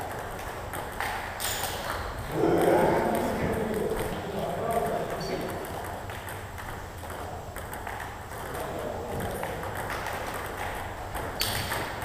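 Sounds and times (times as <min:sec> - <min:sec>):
table tennis ball clicks: 0:02.6 - 0:08.6, 0:09.2 - 0:12.0.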